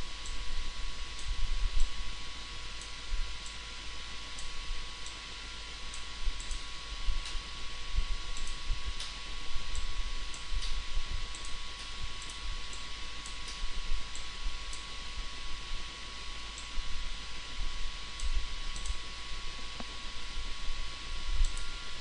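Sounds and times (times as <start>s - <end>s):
faint hum: 0.0s - 22.0s
computer mouse clicking: 5.9s - 7.4s, 8.4s - 14.9s, 18.2s - 19.0s, 21.4s - 21.9s.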